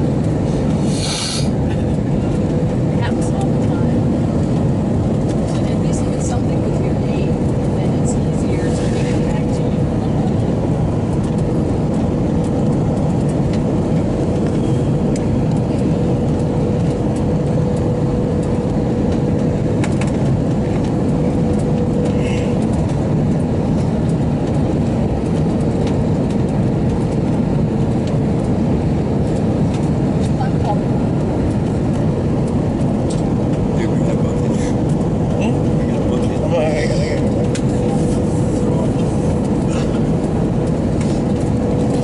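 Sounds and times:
rushing air: 0.0s - 2.8s
jet engines roaring in cabin: 0.0s - 42.0s.

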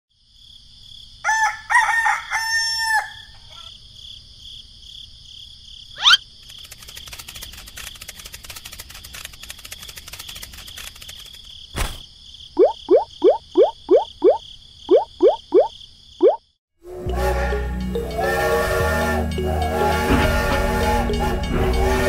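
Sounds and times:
insects chirring: 0.2s - 16.6s
rooster crowing: 1.2s - 3.8s
faint rapid clicking: 6.4s - 11.5s.

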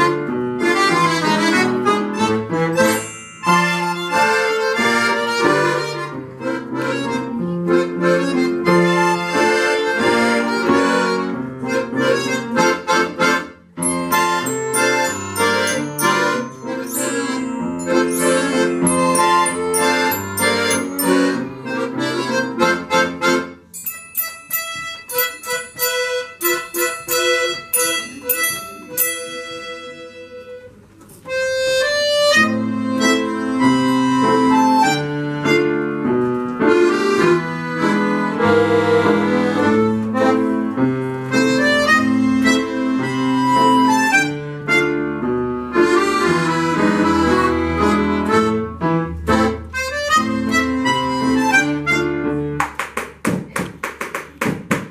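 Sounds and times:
accordion band playing lively tune: 0.0s - 52.7s
single ringing notes: 2.8s - 4.5s, 13.8s - 21.6s.

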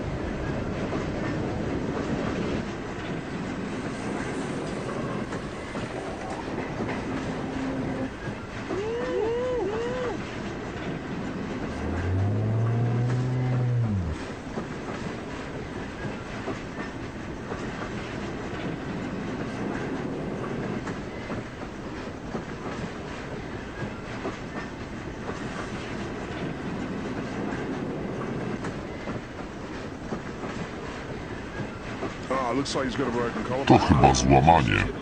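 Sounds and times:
train rumbling on rails: 0.0s - 35.0s.

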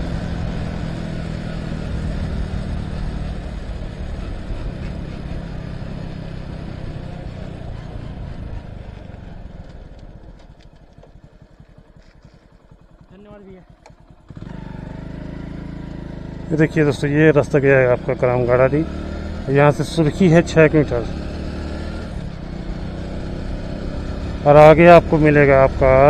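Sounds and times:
motorcycle engine running: 0.0s - 26.0s.

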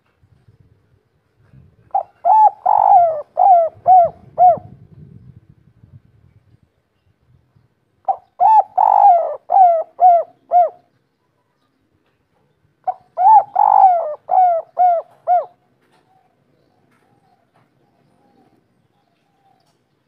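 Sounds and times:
dove cooing: 1.9s - 4.8s, 8.0s - 10.9s, 12.8s - 19.8s.

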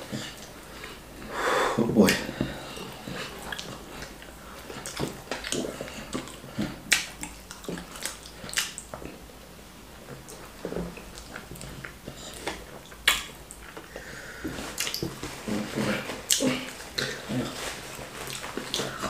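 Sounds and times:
wet mouth smacks and chewing: 3.4s - 9.2s, 10.3s - 13.9s, 14.8s - 15.2s.

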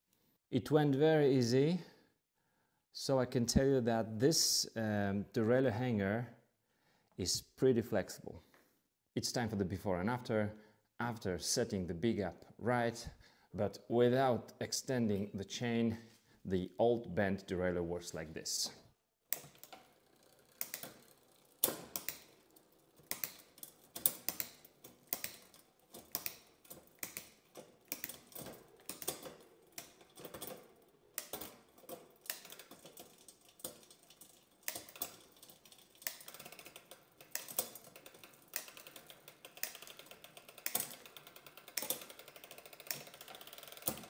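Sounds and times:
bicycle chain clicking on cogs: 19.4s - 44.0s
bicycle chain whir: 19.4s - 44.0s.

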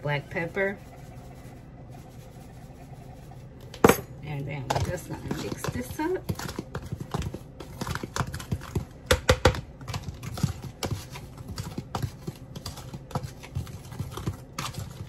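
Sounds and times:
spoon scraping plastic container: 4.6s - 8.9s, 9.8s - 15.0s.

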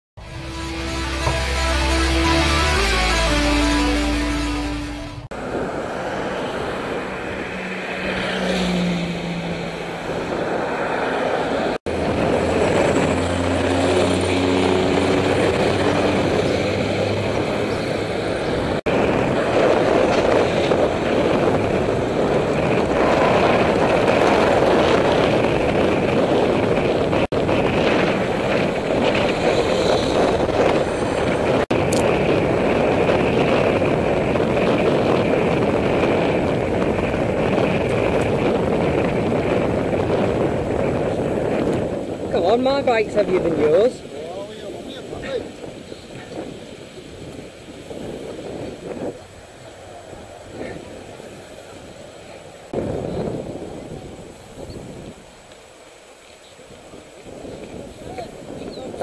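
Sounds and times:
passing car engines: 0.2s - 42.4s
wind rushing over microphone: 4.9s - 59.0s.

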